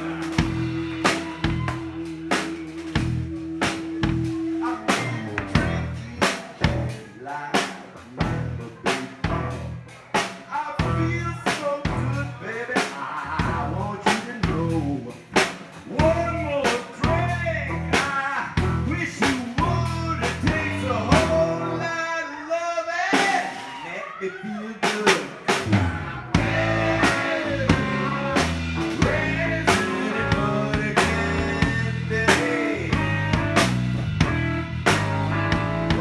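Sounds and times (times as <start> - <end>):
electric bass: 0.0 - 7.1, 8.0 - 10.0, 10.8 - 12.4, 13.3 - 15.1, 15.9 - 21.9, 25.6 - 36.0
drums: 0.0 - 36.0
live blues band playing: 0.0 - 36.0.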